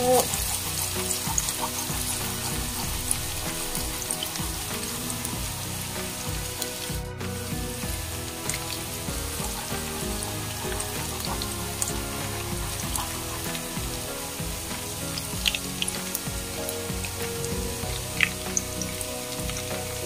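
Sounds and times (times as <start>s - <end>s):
garlic sizzling in oil: 0.0s - 20.0s
wooden spatula stirring in pot: 0.0s - 20.0s.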